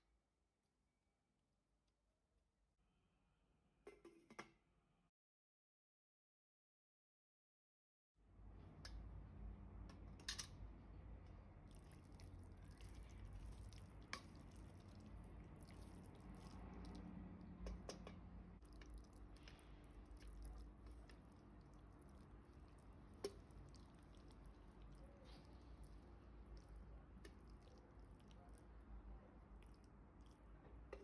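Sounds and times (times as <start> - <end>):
low steady hum: 8.3 - 31.0
wet squelching of stirred sauce: 11.5 - 31.0.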